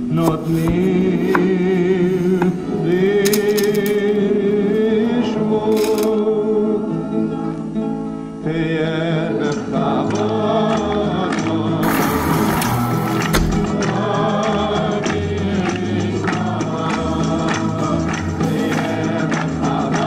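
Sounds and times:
person singing with vibrato: 0:17.1 - 0:20.0.

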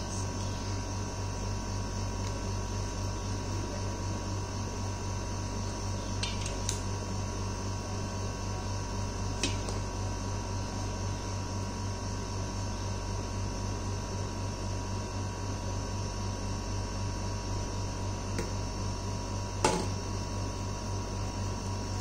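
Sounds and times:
low electrical hum and hiss: 0:00.0 - 0:14.4.

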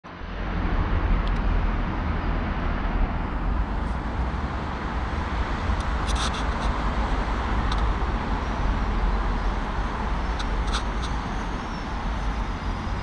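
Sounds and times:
low rumble: 0:00.1 - 0:10.4.

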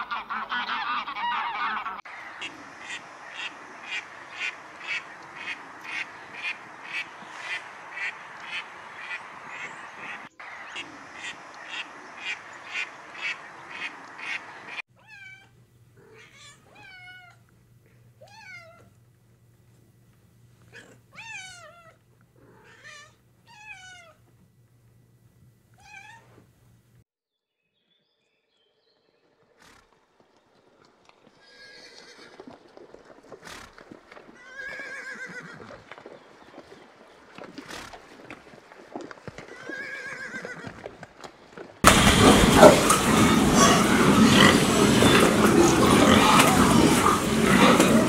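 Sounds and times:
cat meowing: 0:15.0 - 0:17.4, 0:18.2 - 0:18.9, 0:20.8 - 0:22.0
rustle of movement: 0:29.2 - 0:42.0
horses whinnying: 0:31.4 - 0:32.5, 0:34.4 - 0:35.9, 0:39.3 - 0:40.9, 0:41.8 - 0:48.0
pigs grunting: 0:41.8 - 0:48.0.

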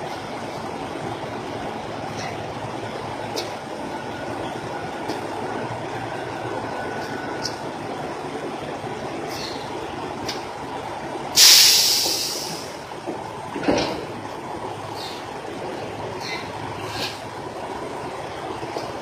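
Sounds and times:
trucks idling: 0:00.0 - 0:19.0
air brakes hissing: 0:11.4 - 0:12.8.

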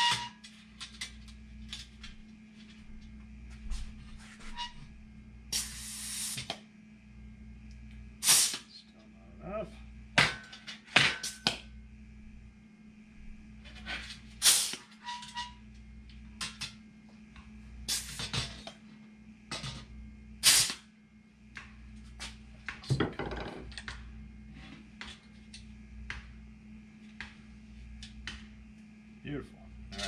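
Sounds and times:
steady low hum: 0:00.0 - 0:30.0
air hiss bursts: 0:05.6 - 0:06.5, 0:08.2 - 0:08.7, 0:14.4 - 0:14.9, 0:20.4 - 0:20.8.

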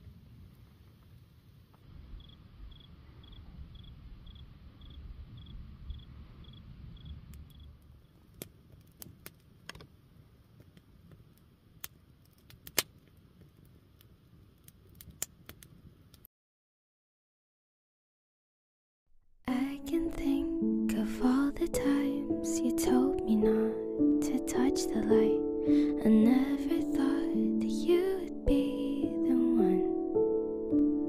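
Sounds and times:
insect chirping: 0:02.0 - 0:08.2
wood fire crackling and popping: 0:07.3 - 0:16.3.

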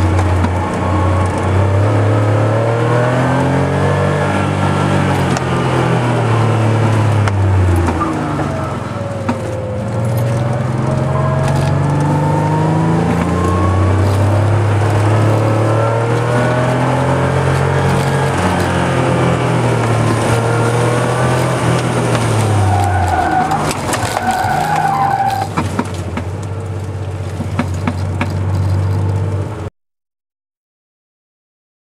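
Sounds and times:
car engine under hard driving: 0:00.0 - 0:29.7
tyre squeal: 0:07.8 - 0:25.7.

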